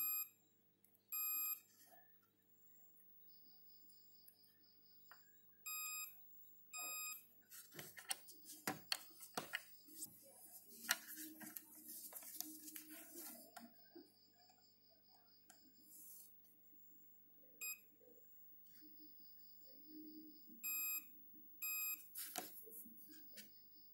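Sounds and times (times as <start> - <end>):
multimeter beeps: 0.0 - 0.3, 1.1 - 1.6, 5.7 - 6.2, 6.8 - 7.3, 17.6 - 17.9, 20.5 - 22.2.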